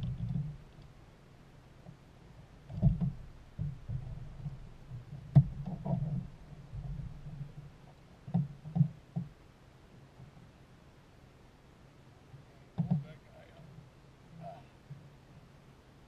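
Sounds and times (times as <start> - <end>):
thumps and knocks on plastic kayak: 2.6 - 9.4, 12.7 - 13.1.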